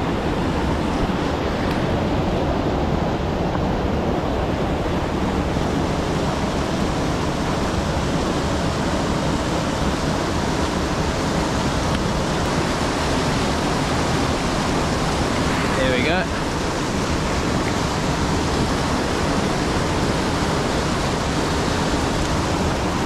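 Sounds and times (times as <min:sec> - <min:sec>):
river water rushing: 0:00.0 - 0:23.0.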